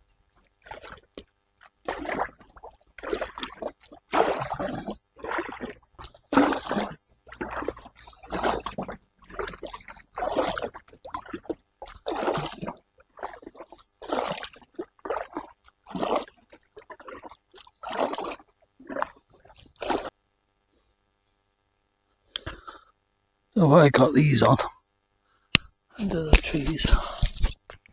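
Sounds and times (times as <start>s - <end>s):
paddle splashing water: 0.4s - 20.2s.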